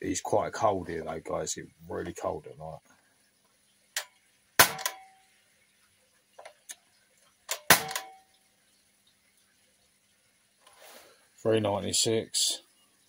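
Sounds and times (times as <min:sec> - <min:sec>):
air rifle shots cracking: 0:04.6 - 0:05.0, 0:07.5 - 0:08.1.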